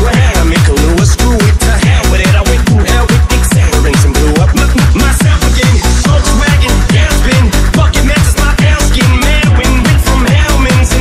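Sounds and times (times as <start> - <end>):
electronic music with sliding bass: 0.0 - 11.0.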